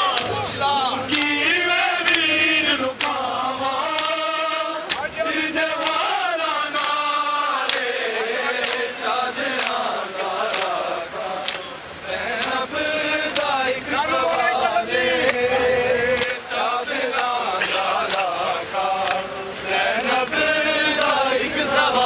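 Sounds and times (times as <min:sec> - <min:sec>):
crowd of men chanting: 0:00.0 - 0:22.0
palms slapping bare chests: 0:03.8 - 0:06.1.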